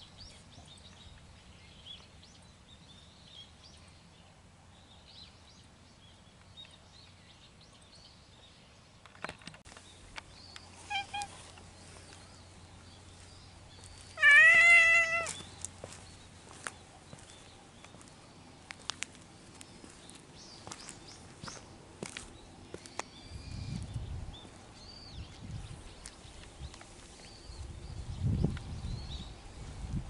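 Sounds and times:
cat meowing: 10.8 - 11.4, 14.2 - 15.4.

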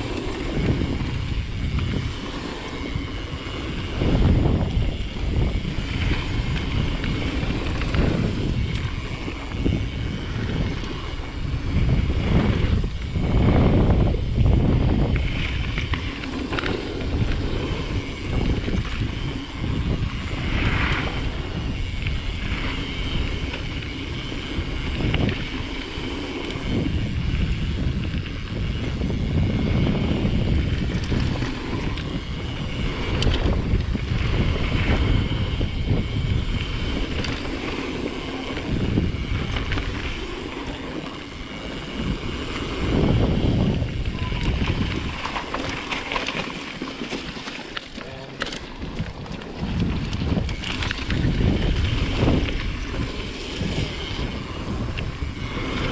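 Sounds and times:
tyres rumbling on dirt: 0.0 - 55.9
wind buffeting microphone: 0.0 - 55.9.

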